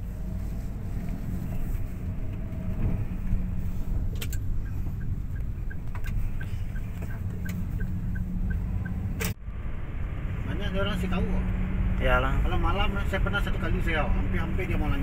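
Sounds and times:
car road and engine rumble: 0.0 - 15.0
turn signal ticking: 2.0 - 9.4.

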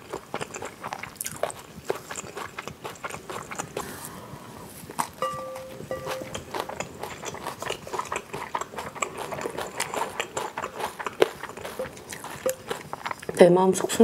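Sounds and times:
close chewing: 0.0 - 14.0
bowl ringing: 5.2 - 6.8
spoon scraping a bowl: 11.5 - 13.3.

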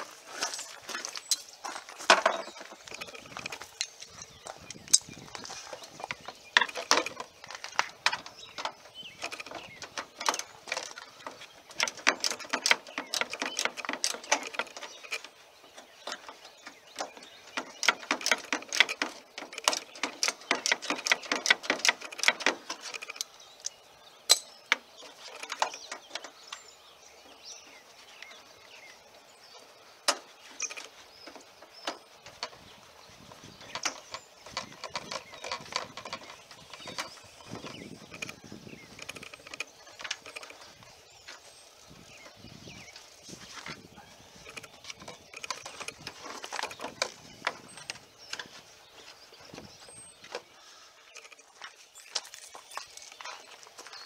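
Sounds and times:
parts being handled: 0.0 - 26.6.

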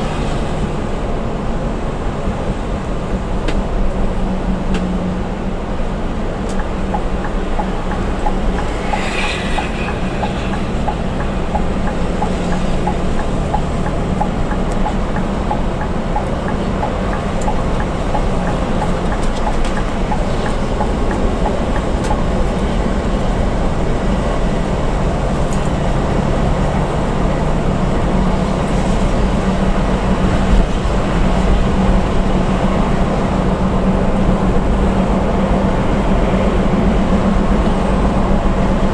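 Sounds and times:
bus engine and tyres droning: 0.0 - 38.9
faint regular ticking: 9.8 - 22.2.

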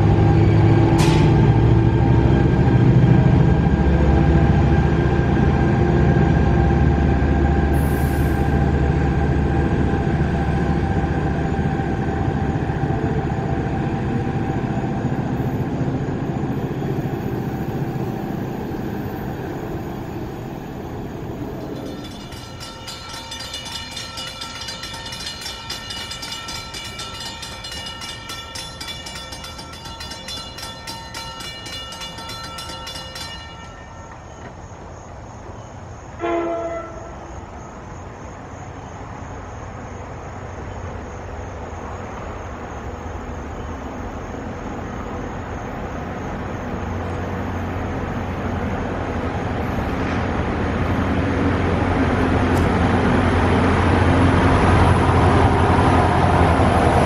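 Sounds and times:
diesel locomotive engine running: 0.0 - 36.2, 36.8 - 57.0
crossing warning bell ringing: 20.7 - 35.7.

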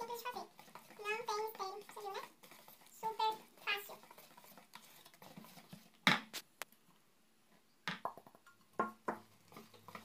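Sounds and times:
whisk knocking bowl: 0.0 - 6.4, 8.1 - 10.0
whisk scraping batter in bowl: 0.0 - 6.4, 9.2 - 10.0.

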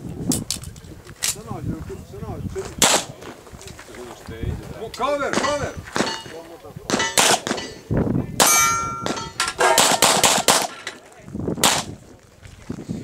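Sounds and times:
pistol shots: 2.8 - 3.2, 6.9 - 7.8, 8.4 - 10.8, 11.6 - 11.9
ringing metallic clang: 5.4 - 11.0.

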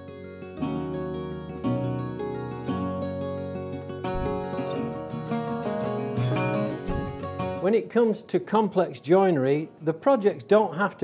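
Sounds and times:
plucked string music: 0.0 - 7.9.

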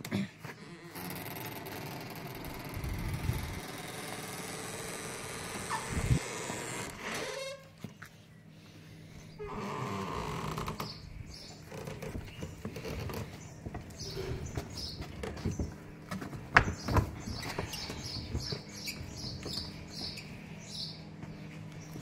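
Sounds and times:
small birds chirping: 7.8 - 22.0.

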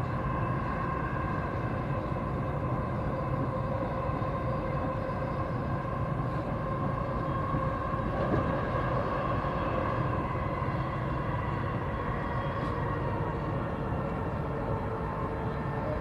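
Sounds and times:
vehicle low rumble: 0.0 - 16.0.

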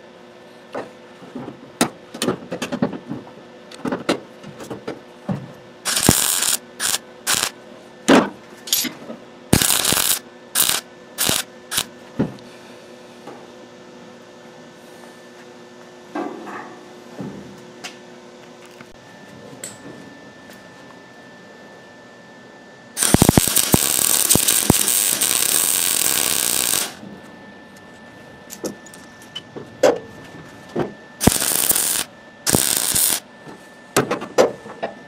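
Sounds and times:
steady low hum: 0.0 - 35.0
welder weld bursts: 5.8 - 7.6, 9.5 - 11.9, 23.0 - 27.0, 31.2 - 33.2.

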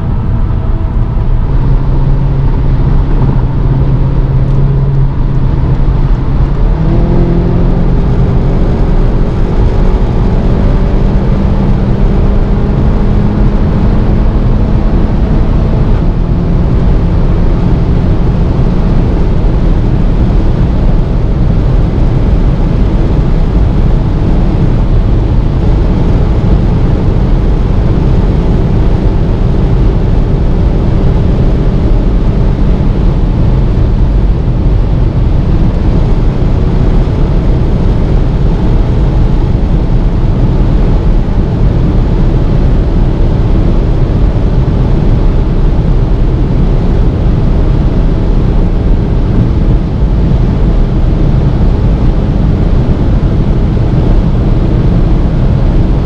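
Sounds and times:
faint engine drone: 0.0 - 56.0
wind and road noise in car: 0.0 - 56.0.

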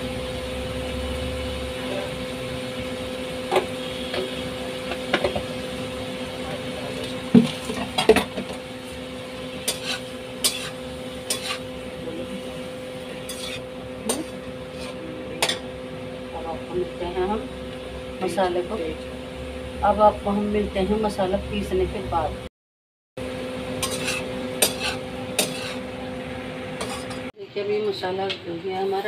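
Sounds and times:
frying hiss: 0.0 - 22.3, 23.6 - 27.3.

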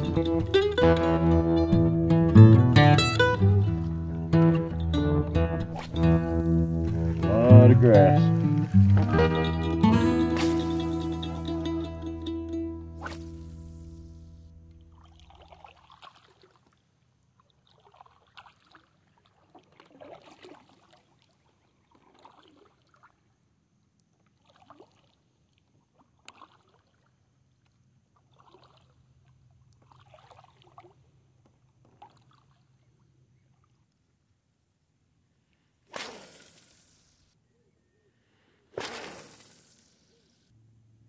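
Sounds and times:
paddle splashing in water: 5.7 - 11.2, 14.8 - 23.3, 24.2 - 32.7.

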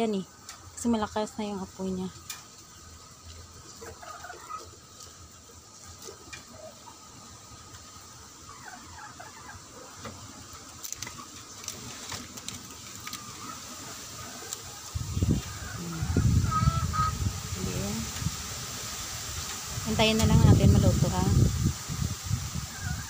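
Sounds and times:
wood fire crackling: 10.5 - 15.4.

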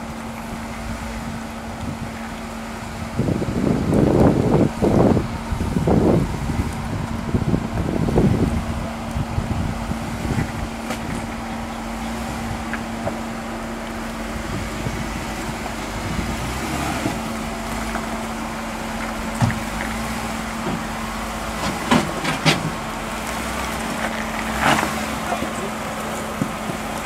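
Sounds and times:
engine running at low revs: 0.0 - 27.0
tyres grinding over rock: 5.8 - 27.0.

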